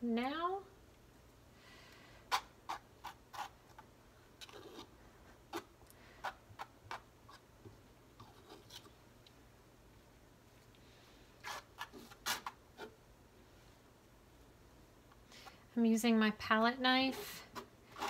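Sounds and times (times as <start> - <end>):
palette knife scraping canvas: 2.3 - 3.6, 11.4 - 13.0.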